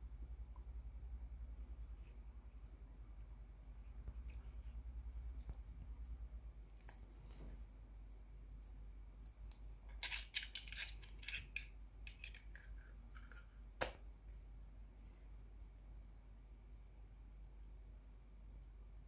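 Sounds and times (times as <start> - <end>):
plastic clicks and scrapes: 9.4 - 13.5.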